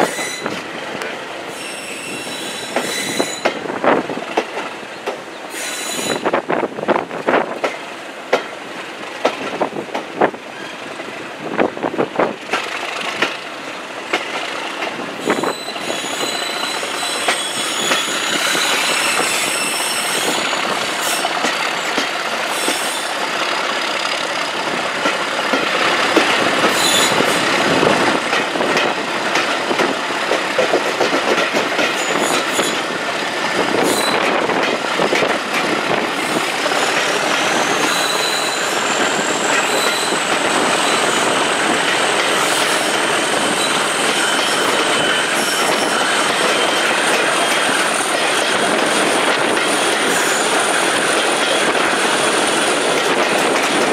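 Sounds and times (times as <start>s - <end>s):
train running on rails: 0.0s - 53.9s
wheels clicking over rail joints: 12.3s - 32.9s, 43.5s - 53.9s.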